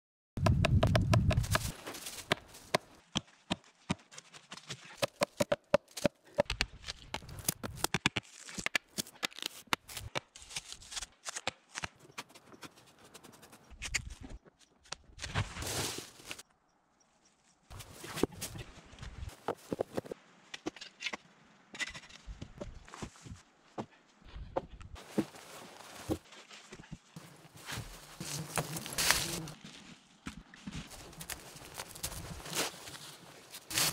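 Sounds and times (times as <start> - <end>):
footsteps in dry leaves: 1.4 - 5.0, 15.4 - 16.4, 25.0 - 33.9.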